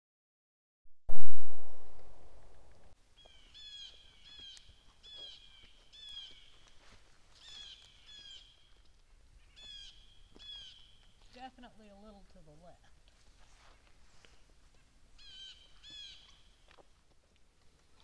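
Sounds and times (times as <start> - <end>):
pistol shot echo: 1.1 - 2.7
bird calling: 3.2 - 6.8, 7.4 - 8.8, 9.4 - 11.2, 15.2 - 16.7.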